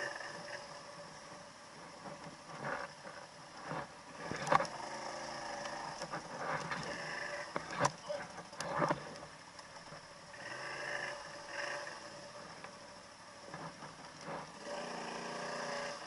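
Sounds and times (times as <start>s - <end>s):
quad bike engine running: 10.4s - 12.3s.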